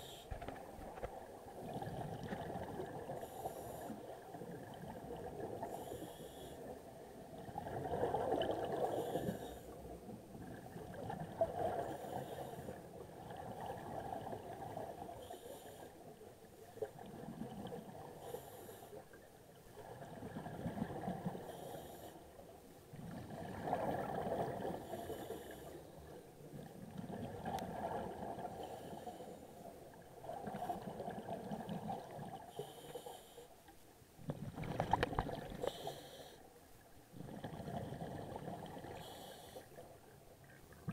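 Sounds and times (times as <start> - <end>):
exhaled bubbles rushing: 34.2 - 35.6.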